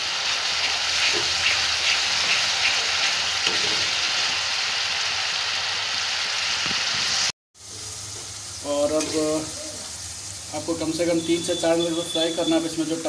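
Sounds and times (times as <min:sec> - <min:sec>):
onions sizzling in hot oil: 0:00.0 - 0:13.0
spatula stirring: 0:00.6 - 0:03.9.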